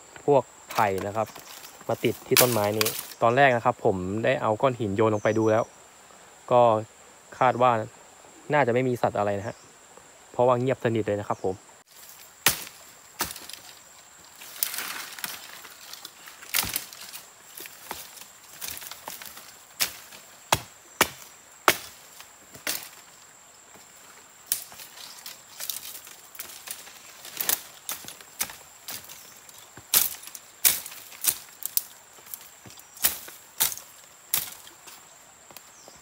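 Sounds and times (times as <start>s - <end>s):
rustling vegetation: 0.0s - 5.8s, 11.7s - 36.0s
high insect trill: 0.0s - 36.0s
axe chopping brush: 2.1s - 3.2s, 12.1s - 13.8s, 14.5s - 23.0s, 29.9s - 32.4s.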